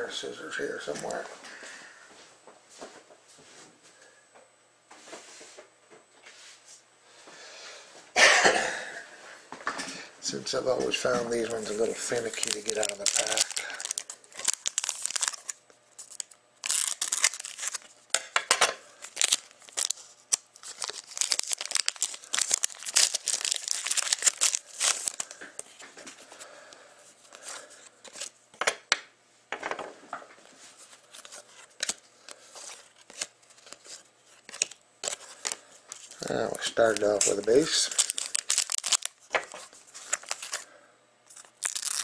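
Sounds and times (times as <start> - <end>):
cards rustling and clicking: 11.0 - 17.9, 19.0 - 26.3, 27.2 - 28.3, 30.8 - 40.6, 41.3 - 42.0
foil wrapper crinkling and tearing: 11.4 - 18.0, 19.0 - 25.8, 31.0 - 40.7, 41.3 - 42.0.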